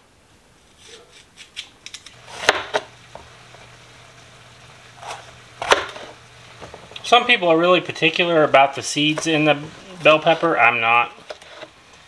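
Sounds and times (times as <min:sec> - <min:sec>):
knife cutting bell pepper: 0:00.8 - 0:02.8, 0:05.0 - 0:06.2.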